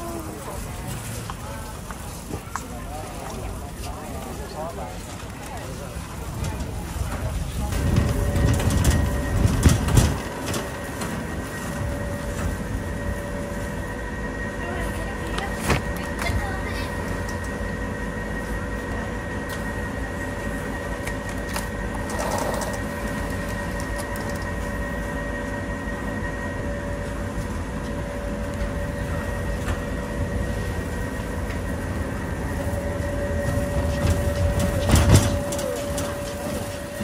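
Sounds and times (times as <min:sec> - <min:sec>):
warehouse store rumble and hum: 0:00.0 - 0:37.0
shopping trolley rattling: 0:05.6 - 0:12.5, 0:33.4 - 0:37.0.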